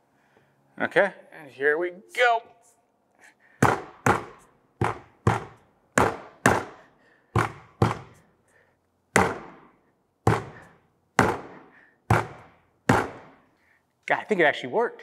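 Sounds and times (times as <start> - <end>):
fist thumping hard plastic case: 3.6 - 6.7, 7.4 - 8.1, 9.2 - 9.7, 10.3 - 13.4.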